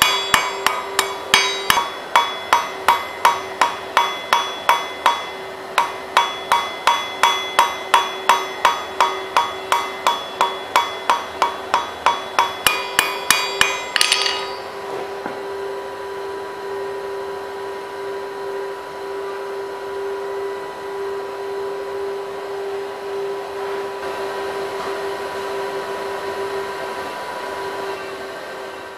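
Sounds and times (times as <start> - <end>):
hammer ringing on anvil: 0.0 - 14.8
steady hum: 0.0 - 27.7.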